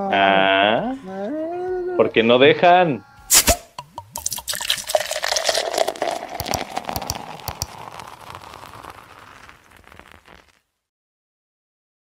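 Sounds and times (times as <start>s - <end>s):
crackling hiss with clicks: 4.2s - 10.7s.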